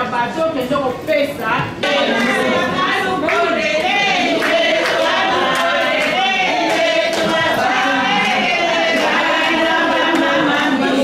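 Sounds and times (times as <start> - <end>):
women singing a church song: 1.8 - 11.0
hand clapping: 4.3 - 10.5.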